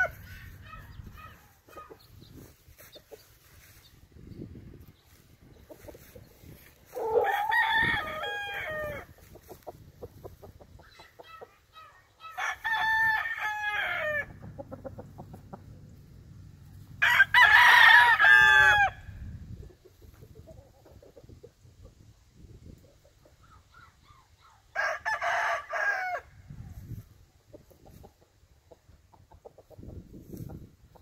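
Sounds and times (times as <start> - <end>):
rooster crowing: 6.9 - 9.1, 24.8 - 26.3.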